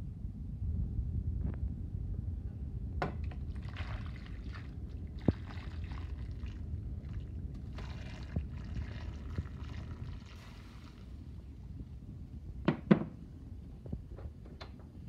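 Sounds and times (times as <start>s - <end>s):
water pouring and splashing: 3.3s - 11.4s.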